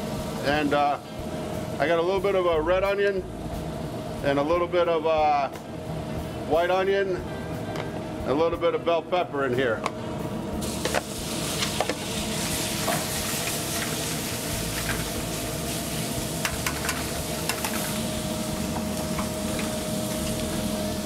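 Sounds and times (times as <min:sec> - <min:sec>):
meat sizzling in a skillet: 0:10.6 - 0:21.0
sharp clatter in pan: 0:16.4 - 0:17.9.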